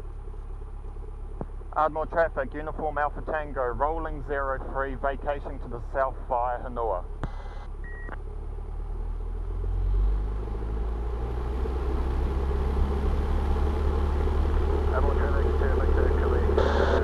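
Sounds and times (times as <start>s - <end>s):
short beep: 7.3s - 8.2s, 16.6s - 17.0s
airplane engine at full power: 10.0s - 17.0s.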